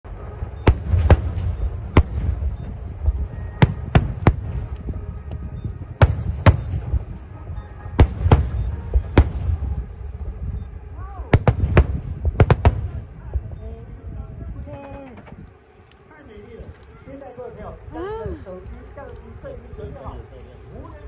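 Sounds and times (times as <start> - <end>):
low rumble: 0.1 - 17.0
fireworks bangs with echo: 0.2 - 10.3, 11.2 - 13.4.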